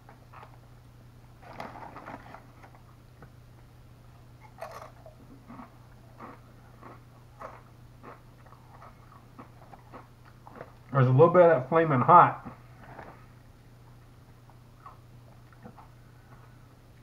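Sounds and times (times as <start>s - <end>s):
chip bag rustling: 1.4s - 2.8s
crunching chips being chewed: 4.4s - 11.0s.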